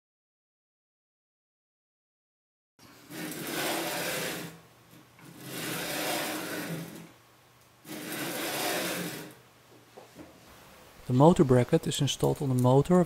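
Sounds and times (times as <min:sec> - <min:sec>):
carriage sliding along steel rods: 0:02.8 - 0:07.2, 0:07.8 - 0:09.4.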